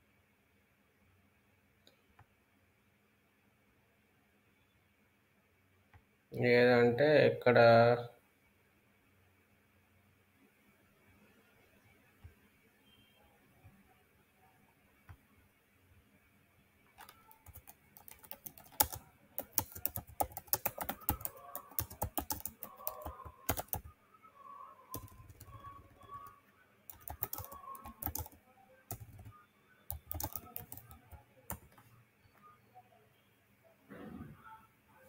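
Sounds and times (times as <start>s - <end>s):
typing on computer keyboard: 17.0s - 23.9s, 24.9s - 29.3s, 29.9s - 31.8s.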